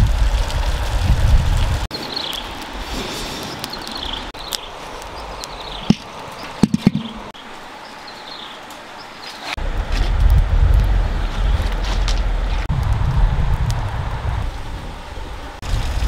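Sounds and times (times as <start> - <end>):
sharp knocks: 6.6 - 7.3.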